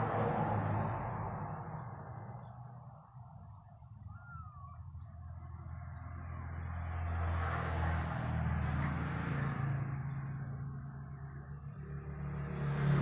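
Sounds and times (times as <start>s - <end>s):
vehicle passing by: 0.0s - 13.0s.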